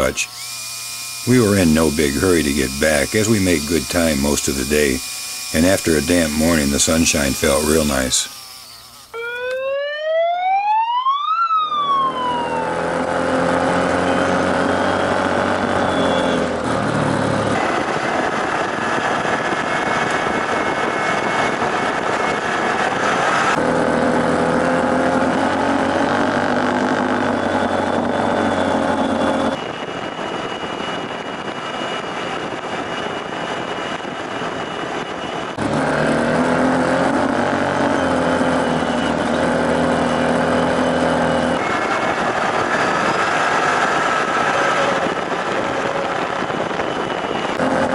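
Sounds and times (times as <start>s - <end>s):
off-road vehicle engine revving: 12.6s - 17.8s, 23.2s - 29.5s, 35.6s - 44.6s, 47.6s - 47.9s.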